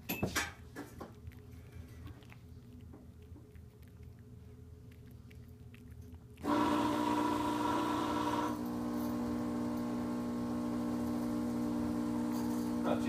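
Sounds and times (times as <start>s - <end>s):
cat chewing clicks: 0.6s - 6.5s.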